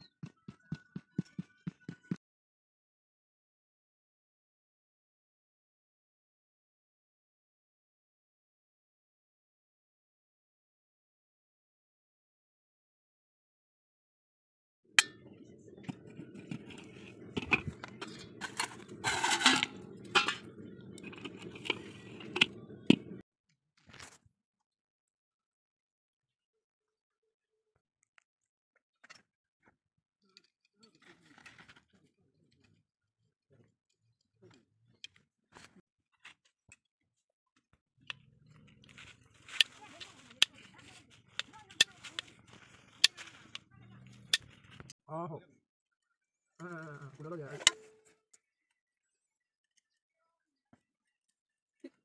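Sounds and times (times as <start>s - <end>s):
low steady hum: 15.0s - 23.2s
steel parts clinking in metal bowl: 16.5s - 22.6s.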